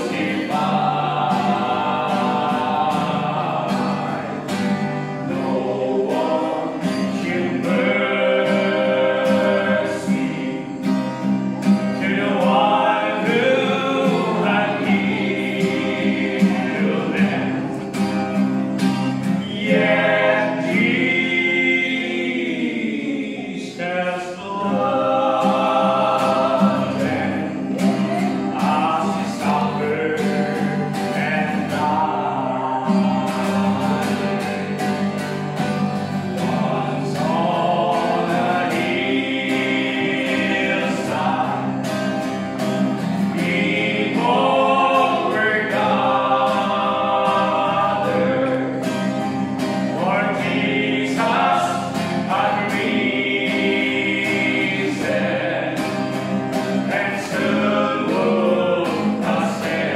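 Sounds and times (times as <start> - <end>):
male quartet singing in harmony: 0.0 - 59.9
strummed acoustic guitar: 0.0 - 59.9.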